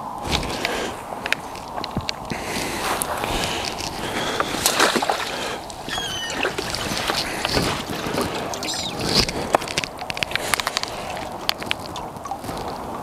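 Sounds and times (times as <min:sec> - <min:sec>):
water splashing and dripping: 0:00.2 - 0:13.0
clicks and knocks of tackle: 0:00.3 - 0:13.0
wavering high call: 0:05.8 - 0:06.5
high chirp: 0:05.9 - 0:06.5, 0:08.5 - 0:09.2.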